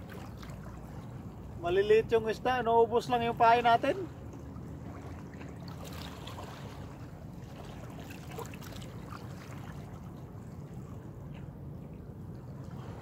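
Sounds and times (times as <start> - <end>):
waves lapping against rocks: 3.8 - 13.0.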